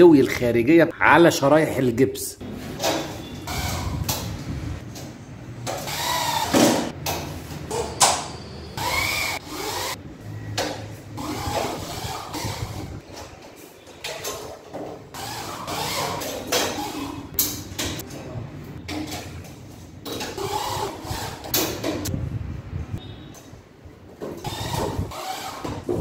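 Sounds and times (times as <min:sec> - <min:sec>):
electric drill driving screws: 0:05.7 - 0:06.8, 0:08.8 - 0:10.0, 0:24.4 - 0:25.8.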